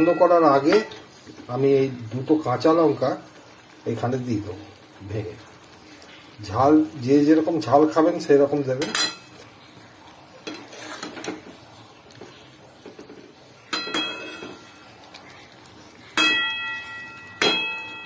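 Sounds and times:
ringing metallic strikes: 0:16.2 - 0:18.0.

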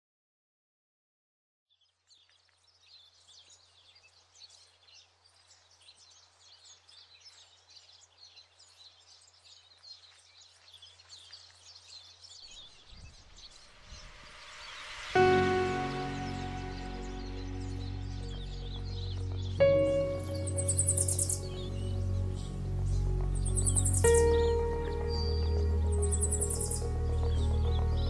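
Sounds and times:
small birds chirping: 0:01.7 - 0:28.0
low hum: 0:12.6 - 0:28.0.

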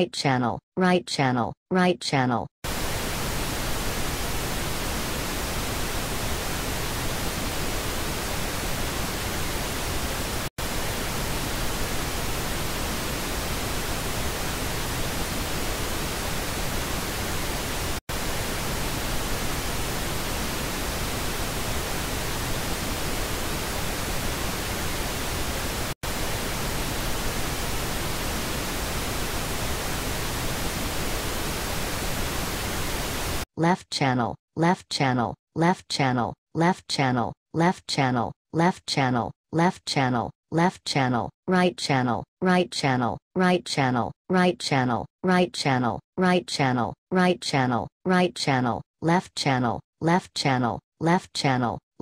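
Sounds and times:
pink noise hiss: 0:02.7 - 0:33.4.

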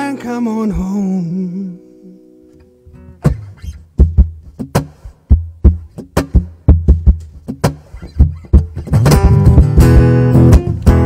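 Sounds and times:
person singing: 0:00.0 - 0:02.3
acoustic guitar percussive strumming: 0:02.5 - 0:11.0
guitar body thumps: 0:03.2 - 0:11.0.

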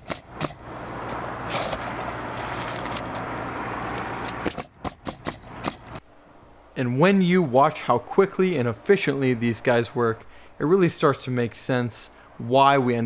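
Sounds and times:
nail gun shots: 0:00.0 - 0:00.6, 0:04.4 - 0:05.9.

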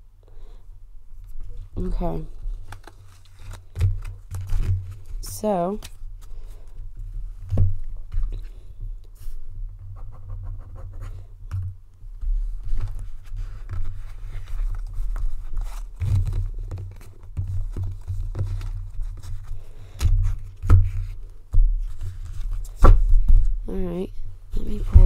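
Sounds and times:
cards being shuffled: 0:01.3 - 0:06.8, 0:12.2 - 0:21.2.

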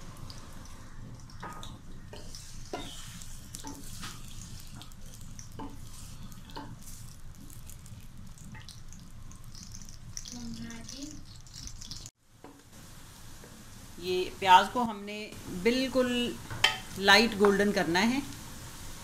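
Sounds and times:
onions sizzling in oil: 0:00.0 - 0:19.0
stirring knocks and scrapes: 0:00.3 - 0:12.6.

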